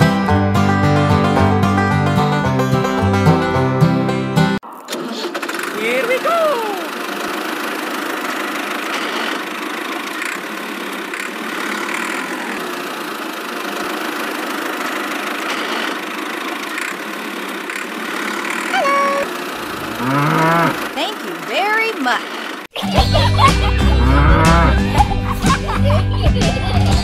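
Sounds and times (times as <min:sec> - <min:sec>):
toy tractor engine running: 0:04.7 - 0:24.8
cow mooing: 0:18.7 - 0:20.9, 0:24.0 - 0:24.8.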